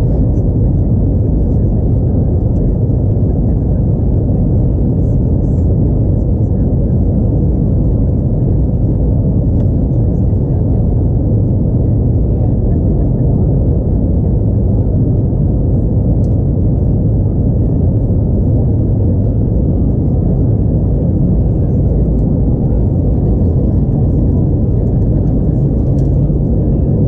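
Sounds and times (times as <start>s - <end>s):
jet engine rumble in cabin: 0.0s - 27.0s.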